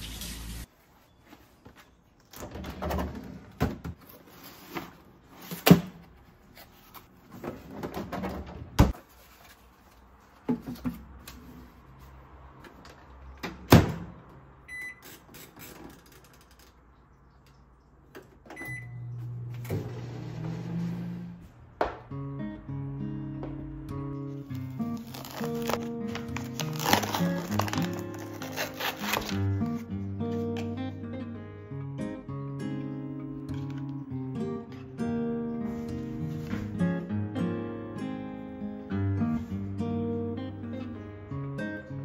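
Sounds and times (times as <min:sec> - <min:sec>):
microwave humming: 0:18.5 - 0:21.4
microwave button beeps: 0:18.6 - 0:19.2.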